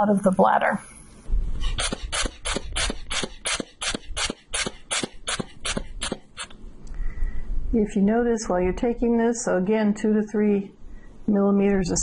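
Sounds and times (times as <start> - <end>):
air hissing from cuff: 1.6 - 6.6.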